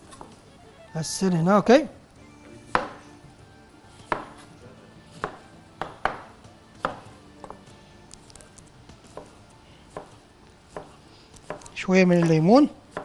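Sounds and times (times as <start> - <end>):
knife knocking on cutting board: 2.7 - 3.0, 5.2 - 7.6.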